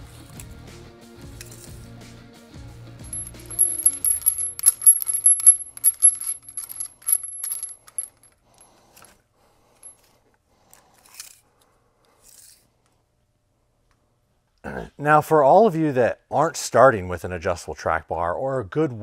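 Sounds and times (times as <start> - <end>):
metal hardware clinking: 3.0 - 8.4.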